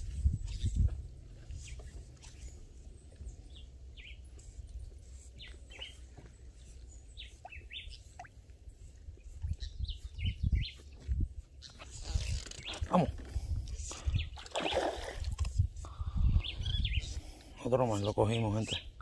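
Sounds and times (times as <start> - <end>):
bird chirps and calls: 0.2 - 0.9, 3.3 - 8.3, 9.2 - 13.1, 16.0 - 19.0.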